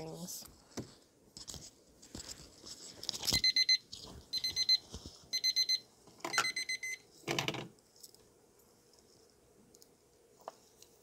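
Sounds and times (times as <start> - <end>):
electronic alarm beeping: 3.4 - 7.0.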